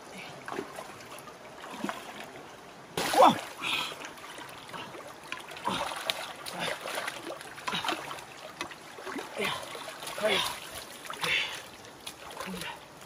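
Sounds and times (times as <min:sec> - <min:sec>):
muddy water sloshing: 0:00.0 - 0:13.0.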